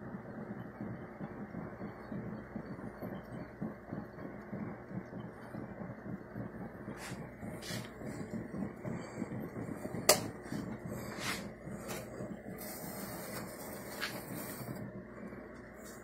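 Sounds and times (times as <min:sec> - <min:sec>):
coffee percolator bubbling: 0:00.0 - 0:16.0
hiss: 0:12.5 - 0:14.8.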